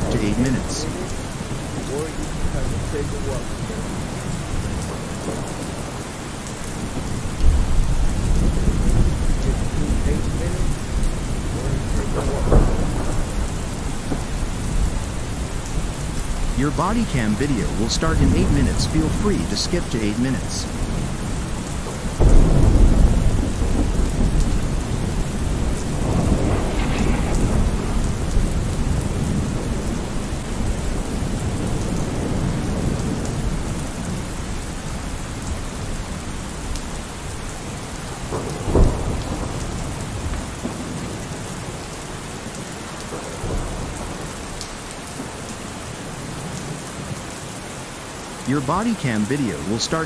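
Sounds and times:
rolling thunder: 0.0 - 16.6, 20.6 - 36.4, 37.2 - 41.8
steady rain: 0.0 - 50.0.

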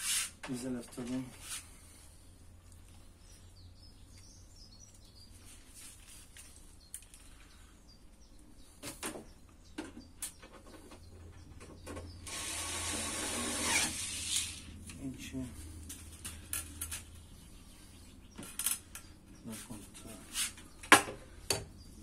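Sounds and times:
rushing scrape: 12.3 - 14.8.

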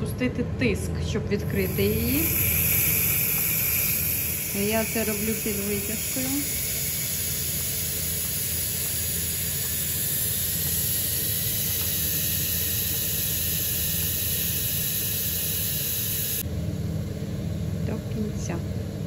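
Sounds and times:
low hum: 0.0 - 19.0
steam hissing from valve: 1.6 - 16.4.

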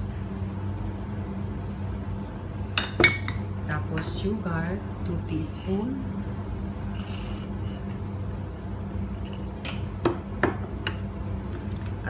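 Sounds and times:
steady low hum: 0.0 - 12.0
spoon scraping sugar: 7.0 - 7.9.

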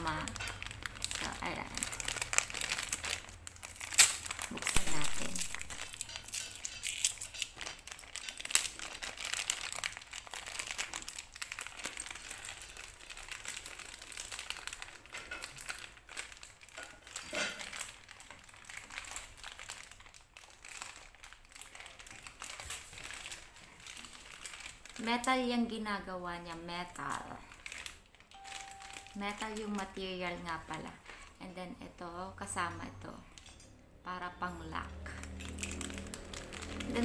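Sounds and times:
small parts clicking: 0.0 - 17.6
plastic bag crinkling: 0.0 - 31.4, 34.8 - 37.0.

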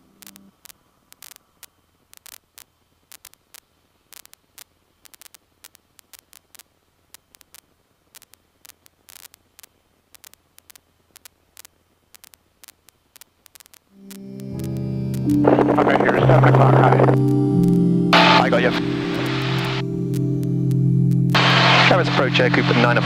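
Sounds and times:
crackling static clicks: 0.0 - 23.0
low steady hum: 13.9 - 23.0.

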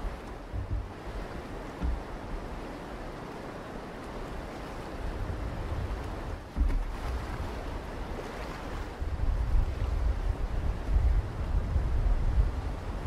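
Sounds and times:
river current rushing: 0.0 - 9.9
wind rumbling on microphone: 0.0 - 13.0.

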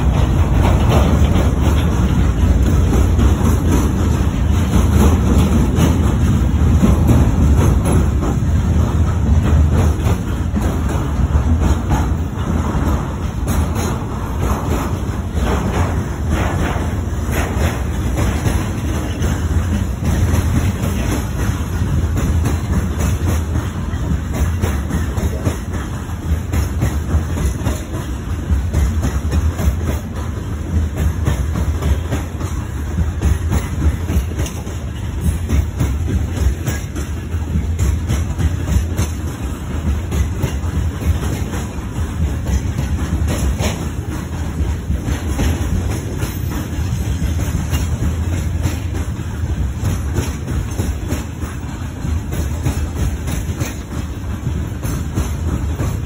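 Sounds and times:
train wheels rumbling on rails: 0.0 - 56.0
wheels clicking over track joints: 0.0 - 56.0.

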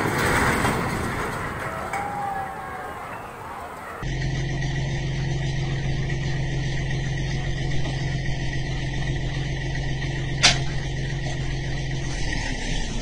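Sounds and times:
diesel engine idling: 0.0 - 13.0
sharp crack: 10.4 - 10.9.

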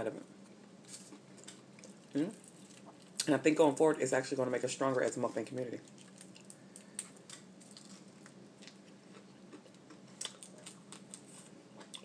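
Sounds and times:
low steady hum: 0.0 - 12.0
person chewing: 0.8 - 3.3, 5.8 - 12.0.

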